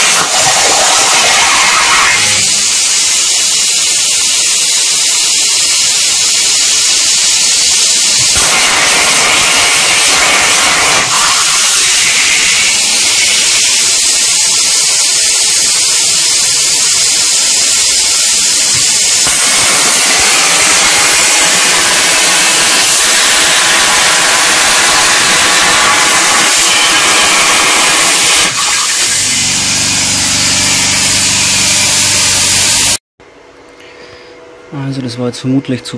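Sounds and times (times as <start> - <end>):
plasma cutter hissing: 0.0 - 33.0.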